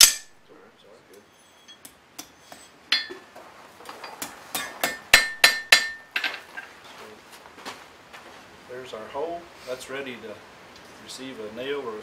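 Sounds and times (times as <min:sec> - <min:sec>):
hammer striking hot iron on anvil: 0:00.0 - 0:00.3, 0:01.5 - 0:03.2, 0:04.1 - 0:06.3.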